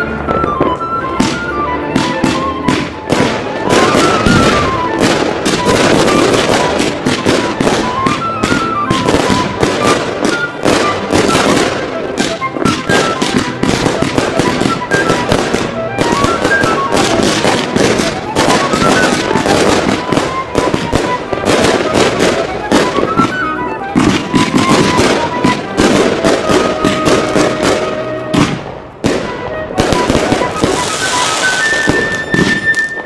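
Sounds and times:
fireworks bangs and crackling: 0:00.0 - 0:33.0
music with stepping melody: 0:00.0 - 0:33.0.

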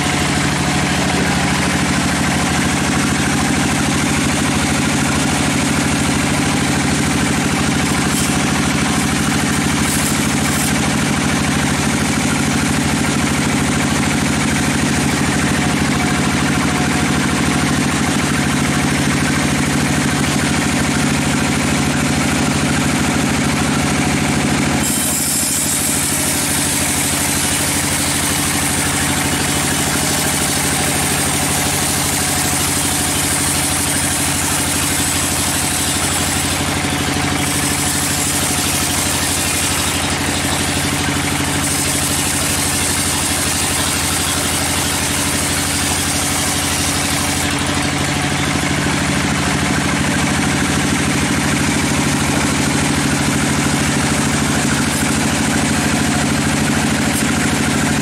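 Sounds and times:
band saw motor hum: 0:00.0 - 0:58.0
saw blade cutting log hiss: 0:07.2 - 0:11.3, 0:24.8 - 0:48.5.

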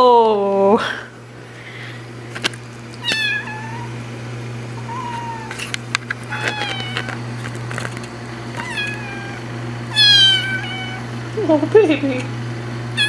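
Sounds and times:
steady low hum: 0:00.0 - 0:13.0
kitten meowing: 0:03.0 - 0:04.0, 0:04.8 - 0:05.6, 0:06.3 - 0:07.0, 0:08.6 - 0:11.1.

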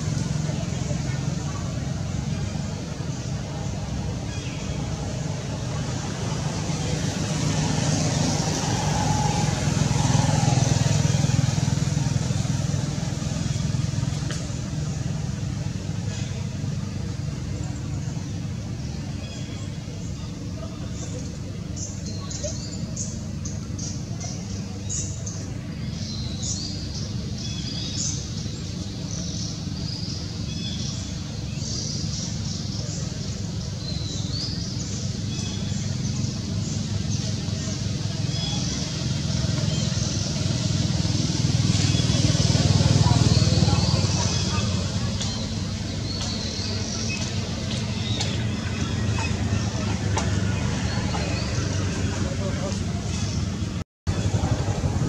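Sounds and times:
vehicle engine passing: 0:00.0 - 0:18.9, 0:32.2 - 0:55.0
birds chirping: 0:00.0 - 0:55.0.

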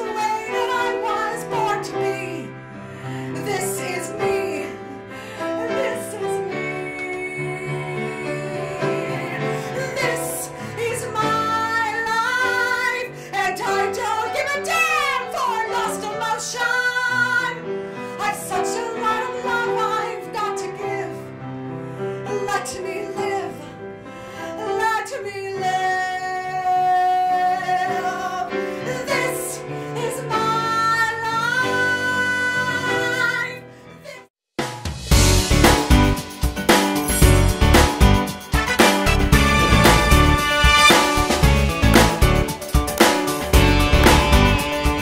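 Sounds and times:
woman singing a ballad: 0:00.0 - 0:21.4, 0:22.1 - 0:34.3
instrumental accompaniment: 0:34.6 - 0:45.0.

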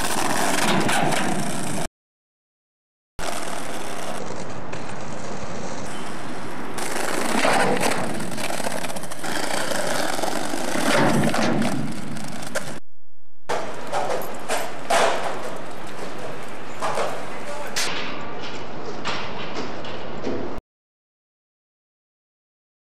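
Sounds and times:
skateboard wheels rolling on pavement: 0:00.0 - 0:01.9, 0:03.2 - 0:12.8, 0:13.5 - 0:20.6
skateboard clicks and knocks: 0:03.2 - 0:12.8, 0:13.5 - 0:20.6.

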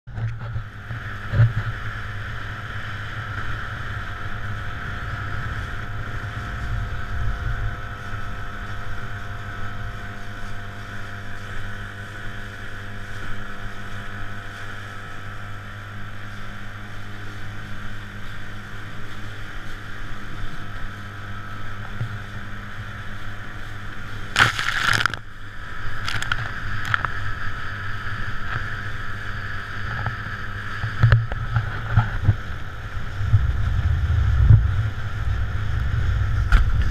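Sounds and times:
boat motor droning: 0:00.1 - 0:36.9
water slapping against hull: 0:23.9 - 0:25.3
loud burst of noise: 0:24.3 - 0:25.3.

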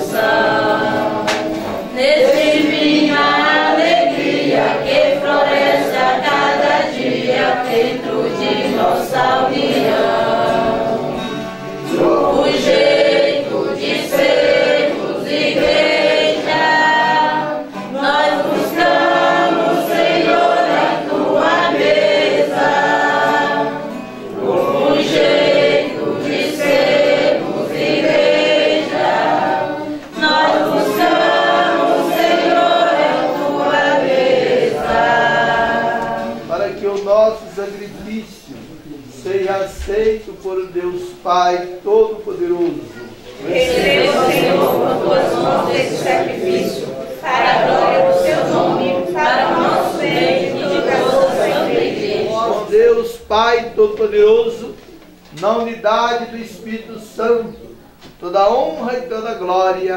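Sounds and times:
strummed acoustic guitar: 0:00.0 - 0:37.0
congregation singing a hymn: 0:00.0 - 0:59.9.

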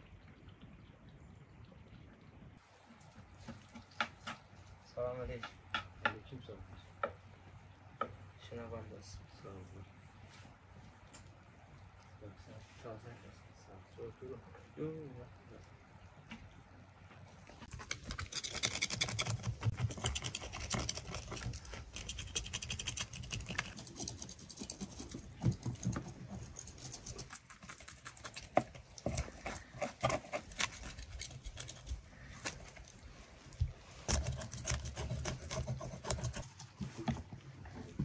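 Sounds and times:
knife scraping fish scales: 0:17.6 - 0:25.1, 0:26.4 - 0:32.6, 0:34.0 - 0:36.6.

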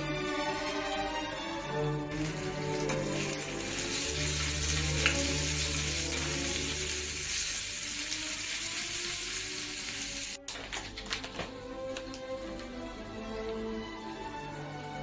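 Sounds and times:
onion and peppers sizzling in a pan: 0:02.1 - 0:10.4.

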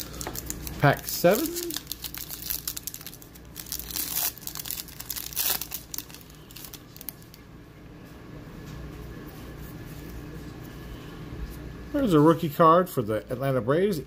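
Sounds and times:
wrapper crinkling as torn open: 0:00.0 - 0:07.4.

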